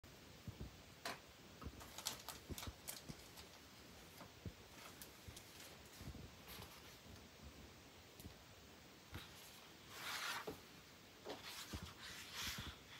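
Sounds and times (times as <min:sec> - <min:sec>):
paper rustling: 0:01.8 - 0:07.1, 0:09.1 - 0:10.6, 0:11.3 - 0:12.9.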